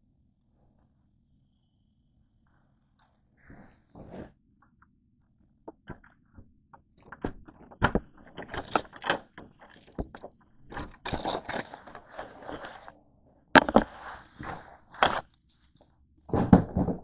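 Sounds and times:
scraping rustles: 7.2s - 13.0s, 13.6s - 17.0s.

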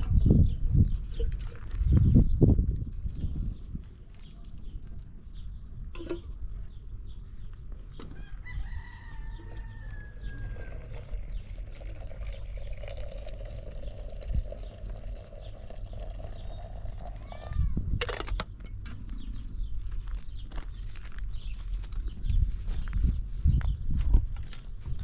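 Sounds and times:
rooster crowing: 8.2s - 11.1s.

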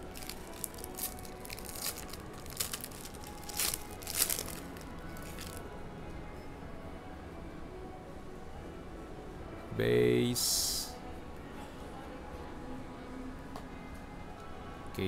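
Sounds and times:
foil wrapper crinkling and tearing: 0.0s - 5.6s.

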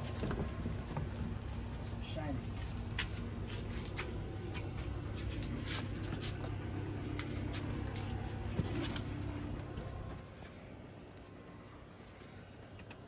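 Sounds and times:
steady low rumble: 0.0s - 12.7s.

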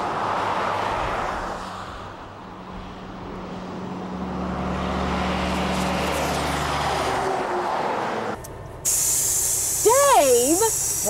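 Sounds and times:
tyre and traffic noise: 0.0s - 11.0s
truck engine hum: 2.2s - 11.0s.

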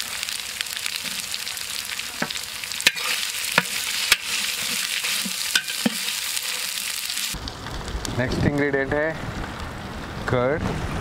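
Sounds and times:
spices sizzling in hot oil: 0.0s - 7.4s
ladle clinking against metal pot: 5.3s - 6.1s.

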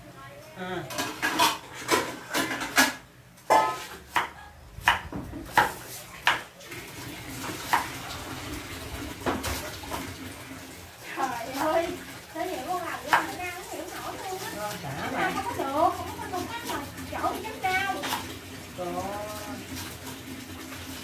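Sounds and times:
knife chopping on wooden board: 3.5s - 6.5s.

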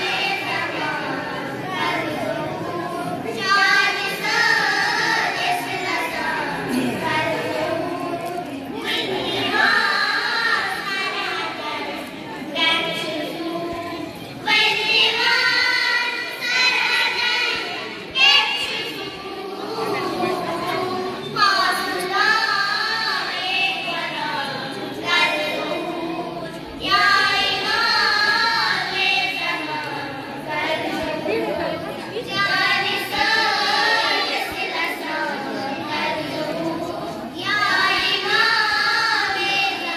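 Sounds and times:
girls singing devotional song: 0.0s - 39.9s.

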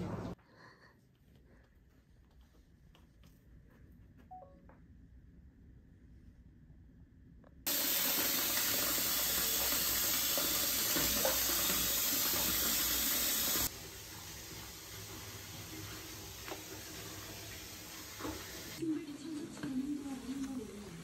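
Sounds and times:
tap water pouring into tub: 7.7s - 18.8s.

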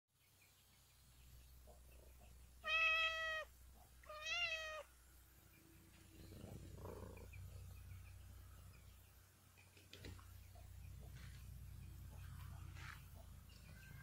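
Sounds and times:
cat meowing: 2.6s - 4.9s
soft rustling: 10.9s - 13.7s.

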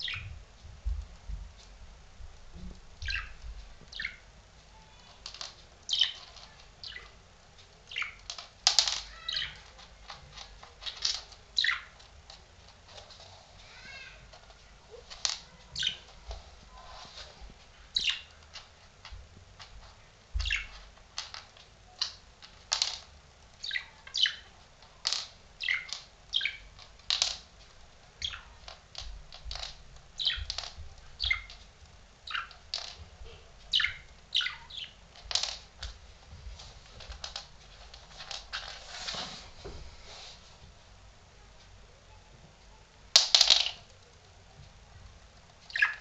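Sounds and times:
budgerigar chirping: 3.0s - 4.2s, 28.2s - 28.6s, 45.7s - 46.0s.

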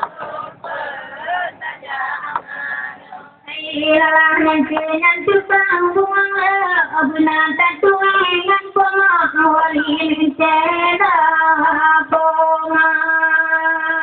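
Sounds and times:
woman singing slow melody: 3.5s - 14.0s.

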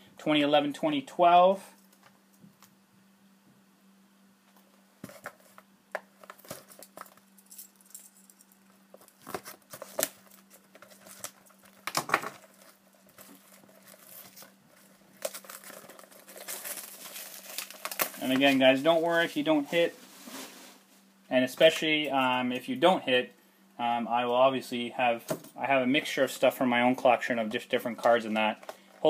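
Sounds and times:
faint low hum: 0.0s - 29.0s
plastic wrap crinkling: 8.8s - 20.9s.

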